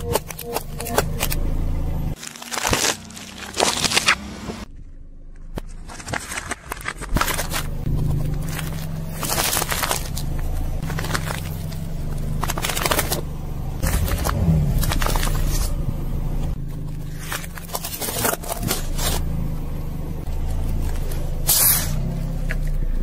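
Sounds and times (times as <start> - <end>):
low engine rumble: 0.0 - 6.2, 6.8 - 23.0
tyre crushing plastic: 2.2 - 4.7, 5.4 - 15.8, 16.8 - 19.2.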